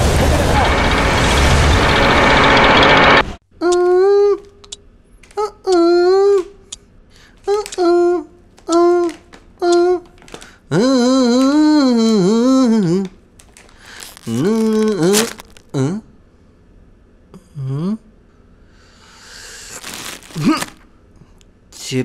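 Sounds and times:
man moaning and humming: 3.6s - 4.4s, 5.4s - 6.6s, 10.7s - 13.2s, 14.2s - 16.2s, 17.3s - 18.1s
breathy exhale: 18.6s - 19.8s.

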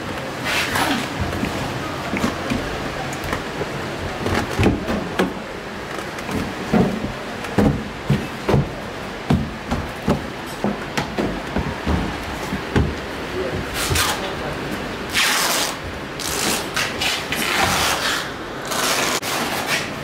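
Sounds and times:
workshop background noise: 0.0s - 20.0s
knocks on plastic cabinet: 6.4s - 13.0s.

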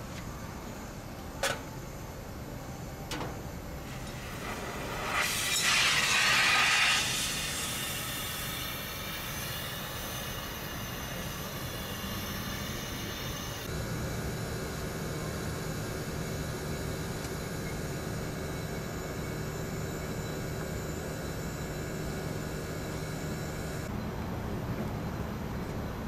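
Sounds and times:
pressurised gas hissing: 3.8s - 13.4s.

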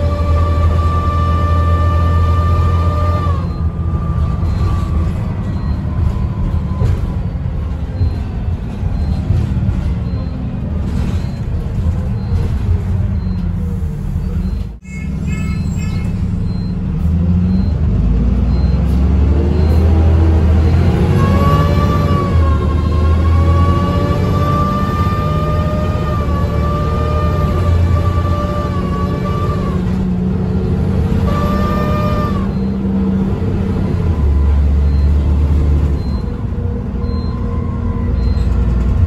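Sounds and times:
bus engine rumble: 0.0s - 39.0s
short beeps: 2.8s - 6.0s, 10.0s - 16.9s, 18.5s - 18.9s, 34.2s - 36.4s, 37.0s - 38.6s.

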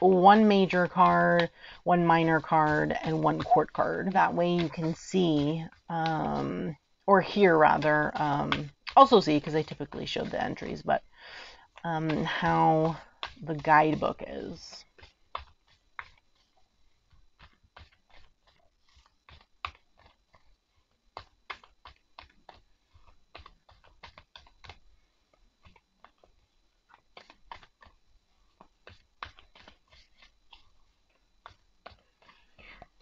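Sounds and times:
cards being shuffled: 11.7s - 33.0s.

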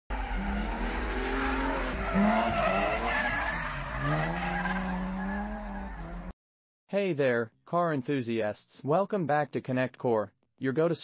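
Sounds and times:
car engine revving: 0.1s - 6.3s.

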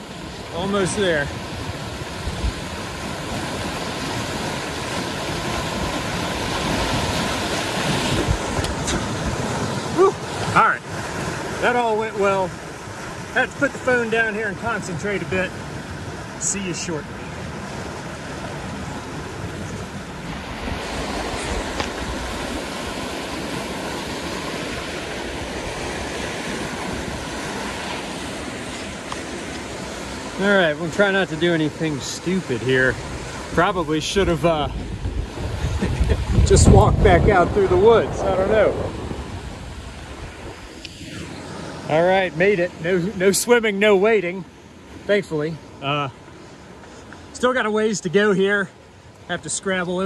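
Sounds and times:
river rapid rushing: 0.0s - 50.0s
wind buffeting on microphone: 0.1s - 11.7s, 15.5s - 30.4s, 32.5s - 42.9s.

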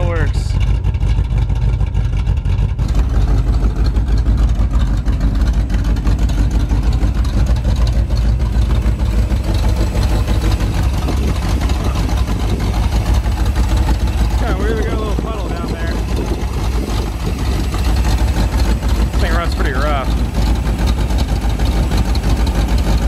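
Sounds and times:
engine idling loud and low: 0.0s - 23.0s.

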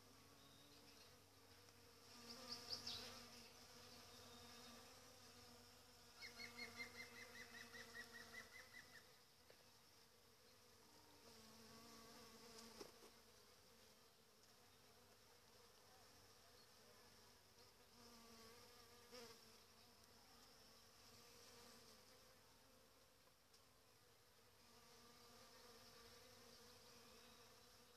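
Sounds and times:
honeybees buzzing: 0.0s - 9.1s.

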